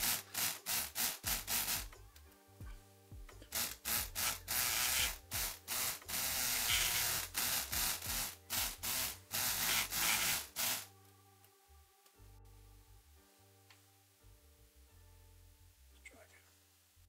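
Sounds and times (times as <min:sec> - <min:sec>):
electric lock pick gun buzzing: 0:00.0 - 0:01.9, 0:03.5 - 0:10.9.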